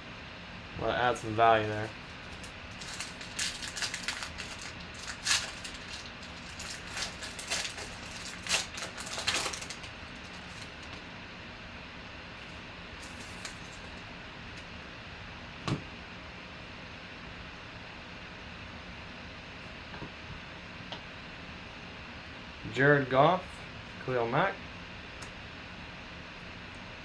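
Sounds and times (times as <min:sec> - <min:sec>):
foil wrapper crinkling and tearing: 0:01.6 - 0:11.0, 0:13.0 - 0:14.0.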